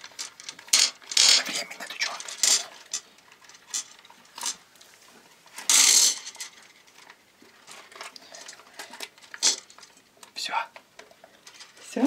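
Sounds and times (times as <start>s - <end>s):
plastic packets rustling: 0.0s - 12.0s.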